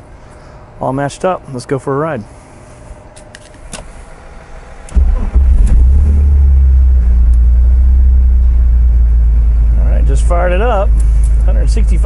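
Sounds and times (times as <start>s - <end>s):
car engine starting and idling: 3.4s - 12.0s.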